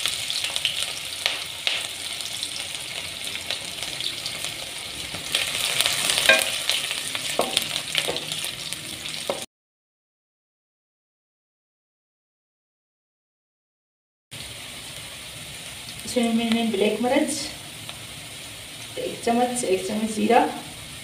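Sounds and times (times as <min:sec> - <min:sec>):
onions sizzling in hot oil: 0:00.0 - 0:09.5, 0:14.3 - 0:21.0
wooden spoon knocking a pan: 0:06.3 - 0:06.6, 0:07.4 - 0:08.3.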